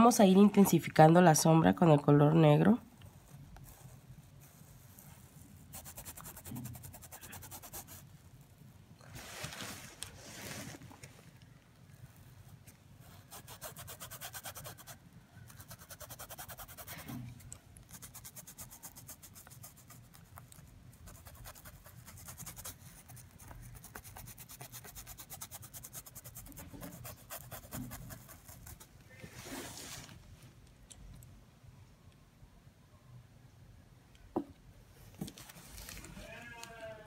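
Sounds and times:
paintbrush scrubbing fabric: 3.1s - 8.1s, 13.1s - 30.2s.

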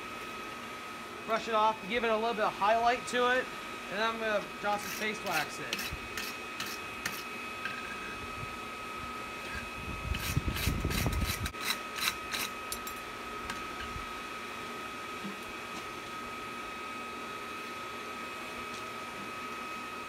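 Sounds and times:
wire brush scraping steel: 4.6s - 8.2s, 9.4s - 12.8s.

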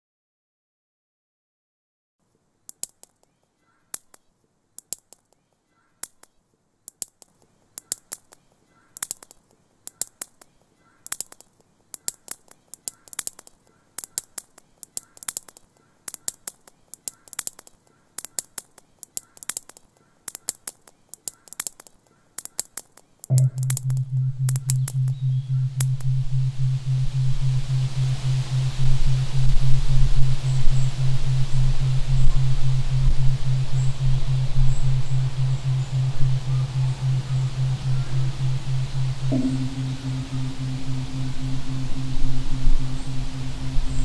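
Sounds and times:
sharp clicks and snaps: 2.7s - 26.2s, 27.1s - 44.0s
faint short repeating tone: 23.3s - 44.0s.

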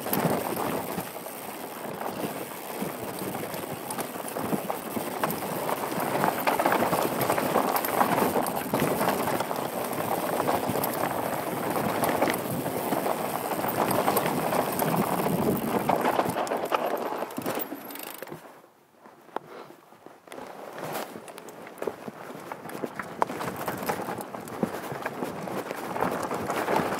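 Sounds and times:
bike rattling over rocks: 0.0s - 18.5s, 20.8s - 26.9s
tyres on loose stones: 0.0s - 18.5s.

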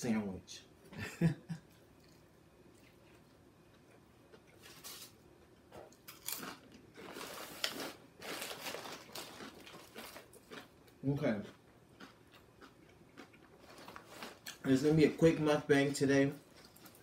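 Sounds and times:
chip bag rustling: 4.6s - 5.2s, 6.1s - 10.7s, 13.6s - 14.8s
crunching and chewing potato chip: 5.8s - 14.8s, 16.4s - 17.0s.

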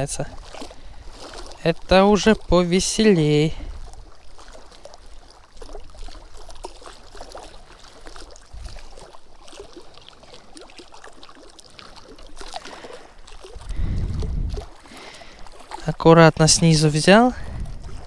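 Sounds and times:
water lapping at shore: 0.0s - 18.0s
low microphone rumble: 13.6s - 14.7s.

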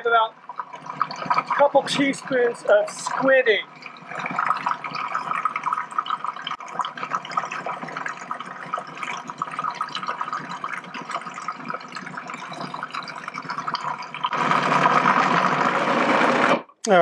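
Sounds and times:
food processor running: 14.3s - 16.7s.

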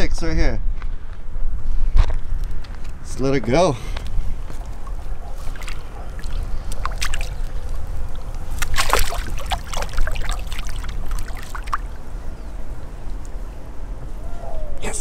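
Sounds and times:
steady low rumble: 0.0s - 15.0s
fish splashing in water: 4.4s - 12.1s.

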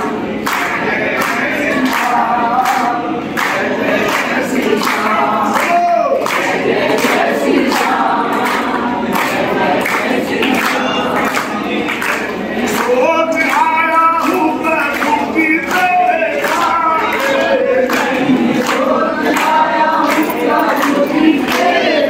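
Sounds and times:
group singing devotional song: 0.0s - 22.0s
hand claps: 0.0s - 22.0s
man leading singing: 0.6s - 6.4s, 10.7s - 22.0s.

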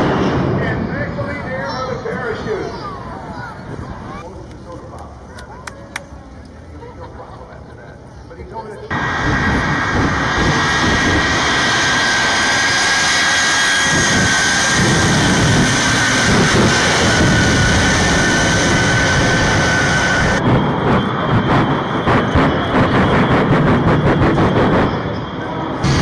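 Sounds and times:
jet engine blast with whine: 0.0s - 4.2s, 8.9s - 26.0s
jet engine rapid crackling: 8.9s - 26.0s.

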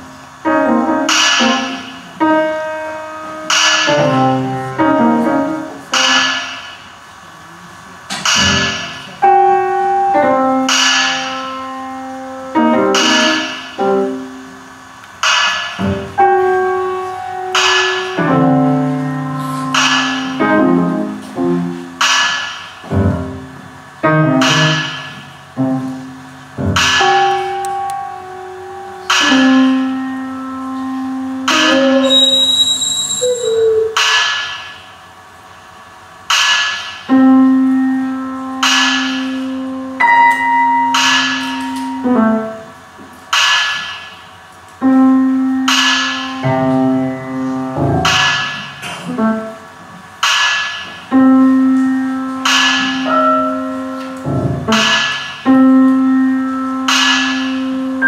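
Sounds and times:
grand piano chords: 0.0s - 7.2s, 8.0s - 58.0s
held low electronic tones: 22.8s - 34.1s.

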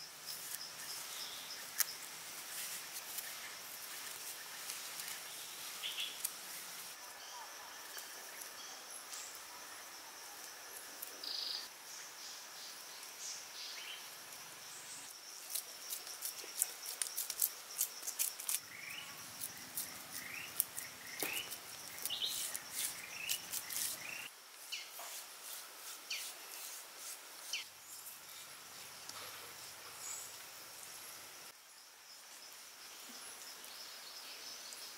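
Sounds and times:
steady insect drone: 0.0s - 34.9s
birds chirping: 18.7s - 24.9s.

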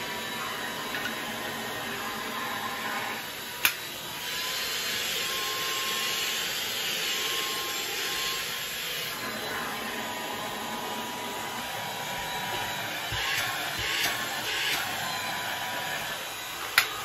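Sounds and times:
vacuum motor whining: 0.0s - 17.0s.

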